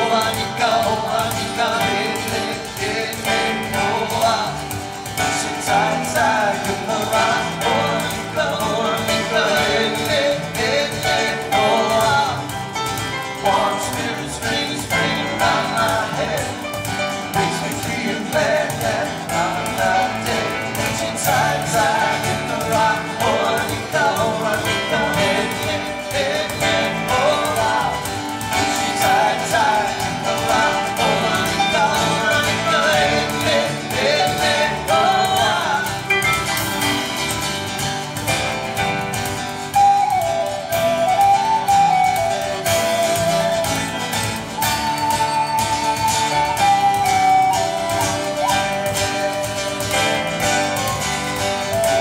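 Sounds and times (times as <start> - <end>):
acoustic guitar: 0.0 - 52.0
drum kit: 0.0 - 52.0
flute melody: 0.0 - 52.0
keyboards: 0.0 - 52.0
upright bass: 0.0 - 52.0.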